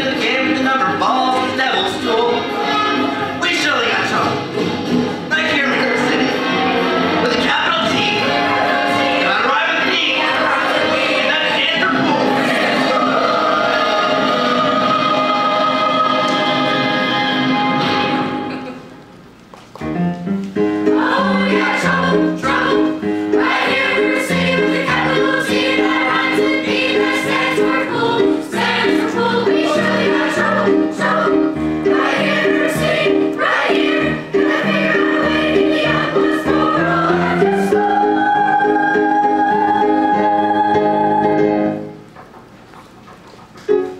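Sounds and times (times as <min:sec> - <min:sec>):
young voices singing show tune: 0:21.0 - 0:41.4.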